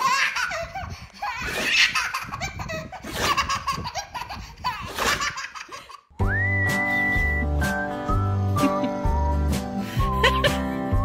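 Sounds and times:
baby laughing: 0.0s - 6.1s.

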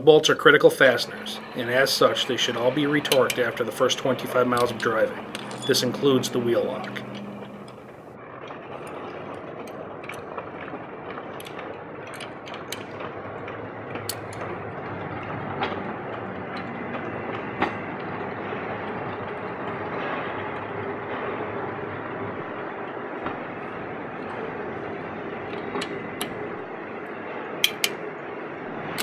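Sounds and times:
rumbling background noise: 0.0s - 29.0s
socket wrench clicks: 27.6s - 27.9s.

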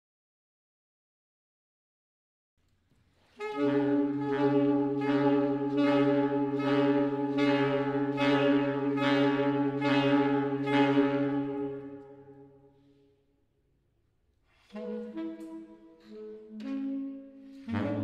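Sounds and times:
saxophone quartet chord: 3.4s - 12.6s, 17.6s - 18.0s.

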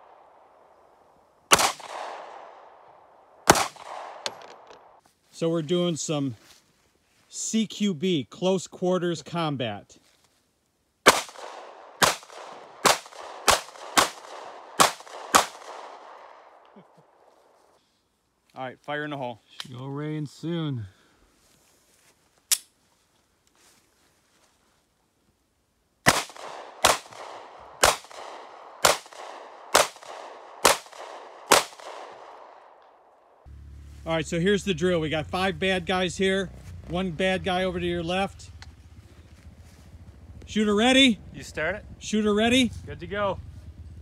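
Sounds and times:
pistol shots echoing: 1.5s - 4.7s, 11.1s - 16.5s, 26.0s - 32.9s.

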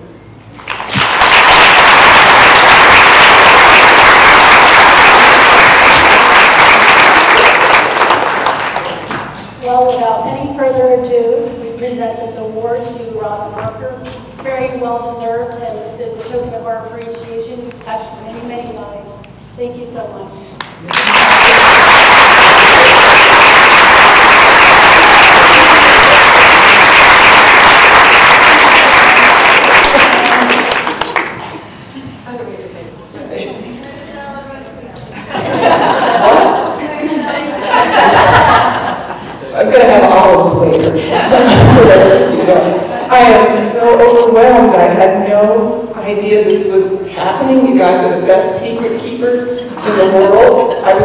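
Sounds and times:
audience applauding: 0.6s - 9.3s, 20.8s - 31.7s.

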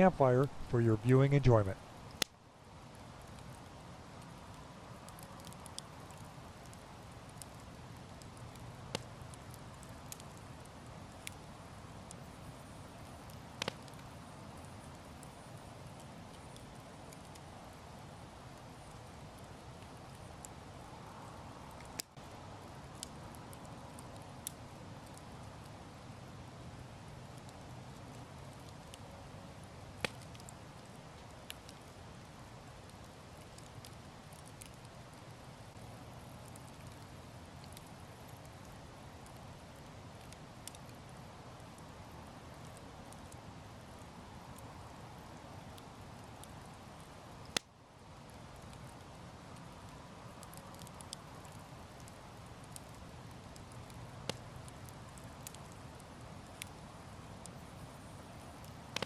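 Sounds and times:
campfire crackling and hissing: 0.0s - 59.0s
sharp fire pops: 13.3s - 14.0s, 30.0s - 30.6s.

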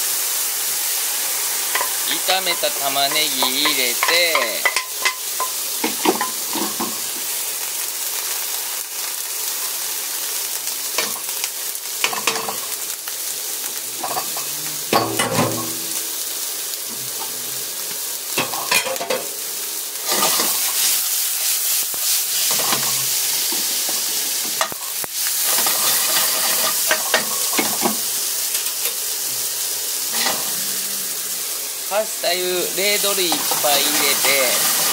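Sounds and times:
vegetables sizzling in a frying pan: 0.0s - 34.9s
spatula scraping and knocking pan: 25.4s - 28.0s.

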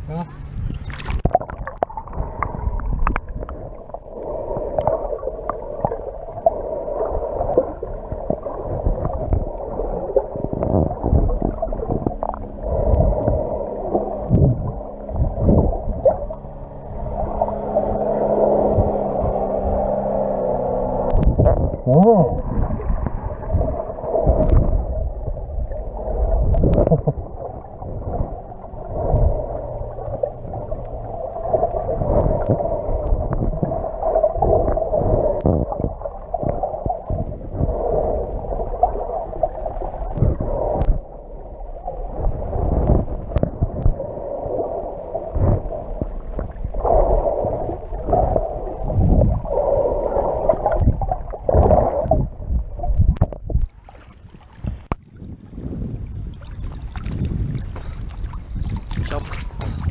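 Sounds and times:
muffled underwater water sloshing: 0.0s - 59.9s
low thumps: 10.4s - 34.8s.

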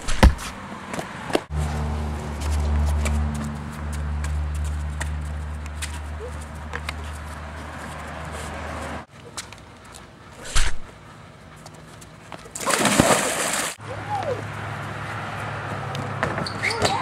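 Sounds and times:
splash into swimming pool: 12.6s - 13.8s.

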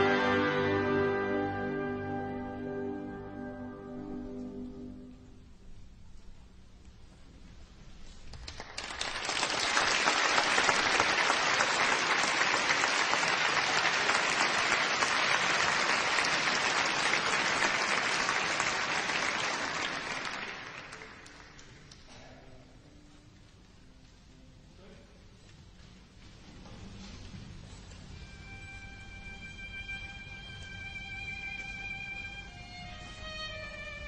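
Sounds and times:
audience applauding: 8.3s - 22.1s.

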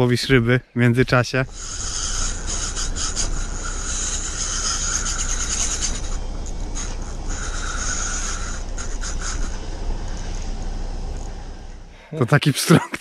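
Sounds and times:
steady low rumble: 0.0s - 12.3s
fishing reel drag buzzing: 1.5s - 11.8s.

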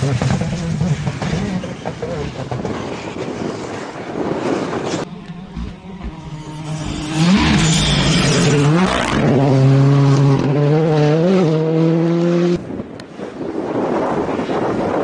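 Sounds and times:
rally car engine revving: 0.0s - 3.2s, 4.8s - 12.6s.

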